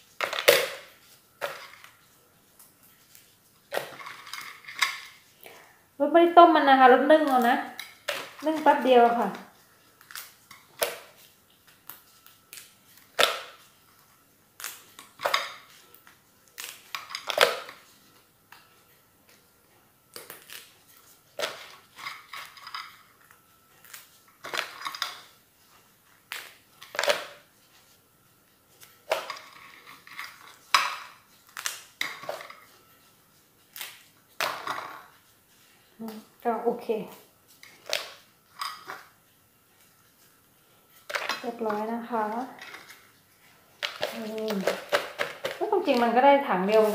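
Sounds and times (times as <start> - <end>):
crab shells clicking and clattering: 0.2 - 1.9, 3.7 - 5.2, 16.6 - 17.9, 21.4 - 25.3, 43.8 - 46.2.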